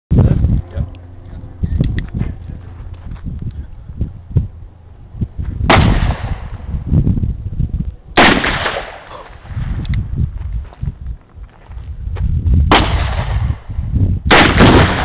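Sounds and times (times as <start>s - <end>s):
revolver gunshots: 5.7s - 6.7s, 8.2s - 9.7s, 12.7s - 13.6s, 14.3s - 15.0s.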